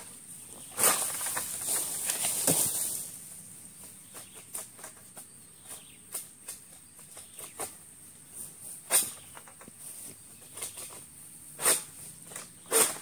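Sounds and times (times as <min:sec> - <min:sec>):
palm leaves rustling: 0:00.0 - 0:13.0
sickle cracking through frond: 0:00.8 - 0:03.1.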